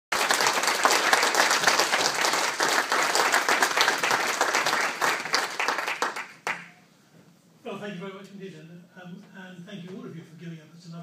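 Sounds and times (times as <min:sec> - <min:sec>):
audience applauding: 0:00.1 - 0:06.8.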